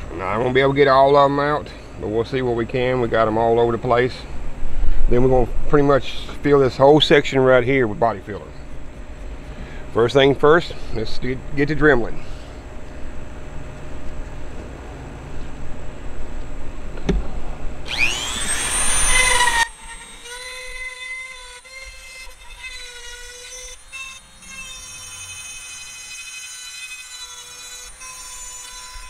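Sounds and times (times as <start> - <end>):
rotary tool grinding whine: 17.8 - 29.0.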